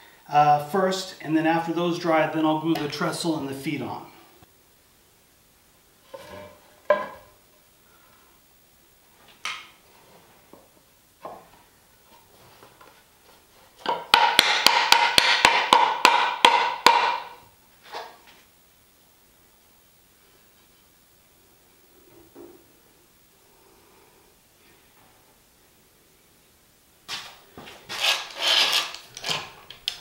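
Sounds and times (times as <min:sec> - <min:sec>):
mallet knocking wood: 0:13.9 - 0:17.4.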